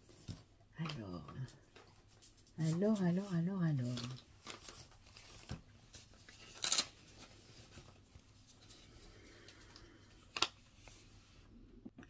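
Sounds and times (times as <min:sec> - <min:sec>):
paper packaging rustling: 0:01.8 - 0:09.0.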